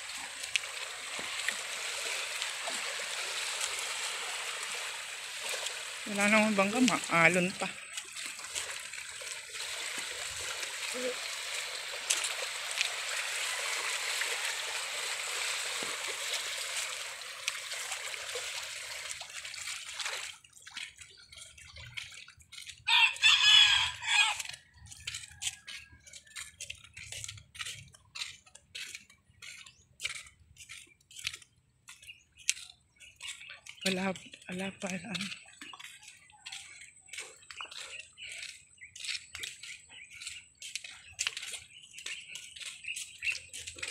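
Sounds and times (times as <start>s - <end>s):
waves washing against concrete bank: 0.0s - 20.4s
water lapping at bank: 0.0s - 43.9s
rooster crowing: 22.9s - 24.6s.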